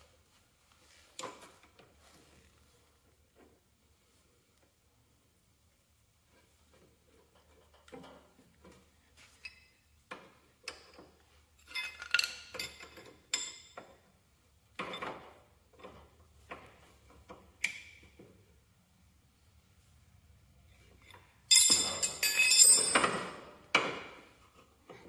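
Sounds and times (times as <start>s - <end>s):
wrench clinking on metal fitting: 11.6s - 13.8s, 21.0s - 23.4s.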